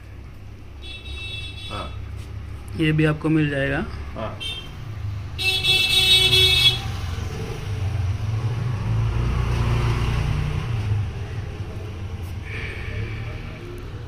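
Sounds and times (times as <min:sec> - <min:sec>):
vehicle horn: 0:00.8 - 0:02.1, 0:04.4 - 0:04.8, 0:05.4 - 0:06.9
vehicle engine passing: 0:06.3 - 0:14.0.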